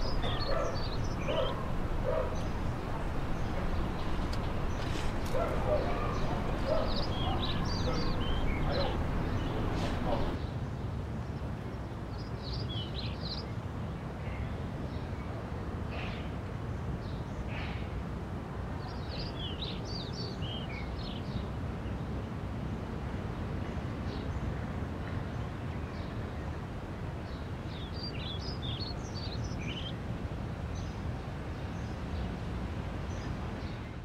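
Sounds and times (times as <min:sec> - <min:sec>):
small birds chirping: 0:00.0 - 0:10.6, 0:27.2 - 0:30.0.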